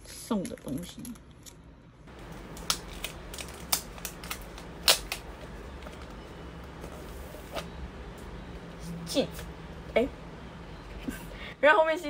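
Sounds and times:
plastic packaging crinkling and tearing: 2.1s - 5.5s.

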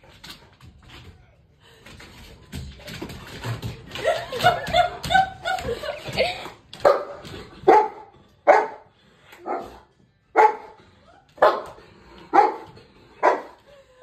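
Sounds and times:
dog barking: 6.8s - 9.8s, 10.4s - 10.8s, 11.4s - 13.6s.

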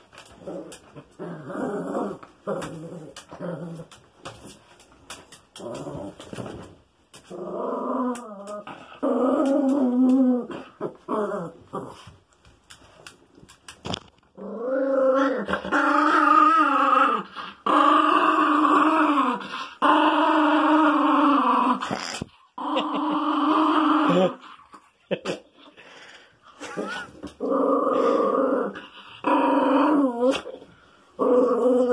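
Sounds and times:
small dog growling: 0.4s - 4.0s, 7.3s - 12.0s, 14.4s - 24.6s, 26.6s - 30.6s, 31.2s - 31.9s.

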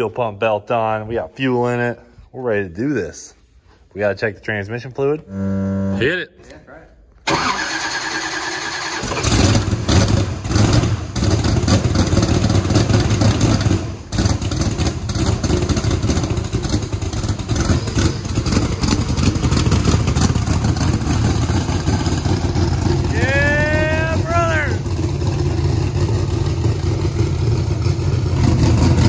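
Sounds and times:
loud engine revving and running: 9.2s - 29.0s.

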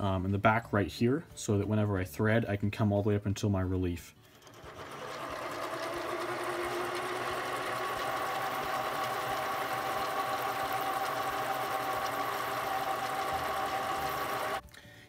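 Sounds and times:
lathe motor whine: 4.3s - 14.6s.

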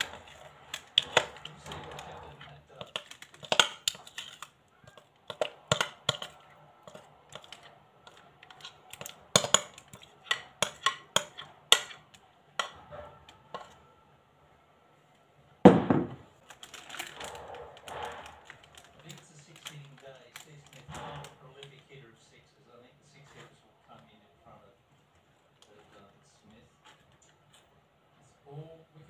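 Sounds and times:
parchment paper rustling: 0.0s - 14.0s, 16.3s - 22.0s, 24.9s - 27.8s
spatula scraping glass bowl: 12.6s - 13.8s
thump: 15.7s - 16.2s.

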